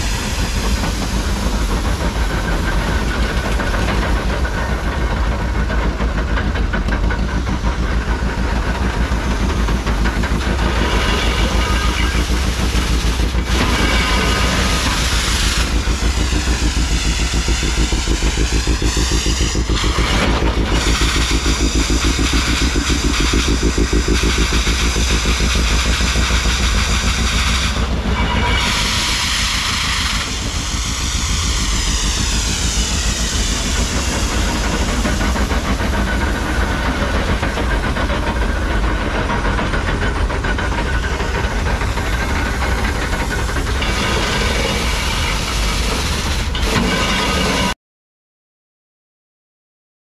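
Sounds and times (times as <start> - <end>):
engine running with fast beat: 14.4 - 28.2.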